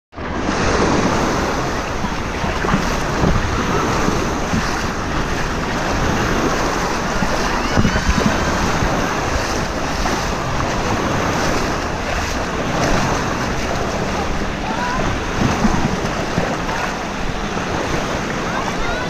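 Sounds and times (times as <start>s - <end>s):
water washing and splashing: 0.2s - 19.0s
wind buffeting microphone: 0.2s - 19.0s
faint shouts of swimmers: 7.3s - 8.8s, 14.5s - 15.5s, 18.2s - 19.0s.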